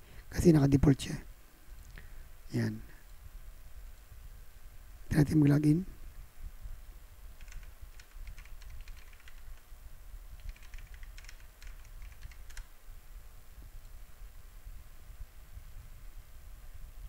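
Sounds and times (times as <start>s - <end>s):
computer keyboard typing: 7.4s - 9.6s, 10.4s - 12.7s.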